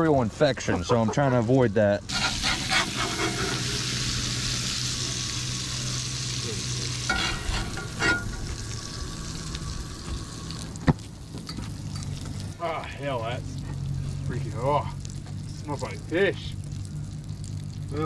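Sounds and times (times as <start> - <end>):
metal spatula scraping pan: 2.1 - 3.8, 7.1 - 8.5
fish sizzling in a skillet: 2.1 - 18.0.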